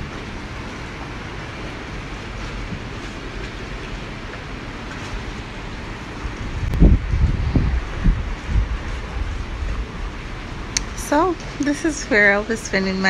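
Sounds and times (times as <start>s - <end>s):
wind rushing on microphone: 5.1s - 12.9s.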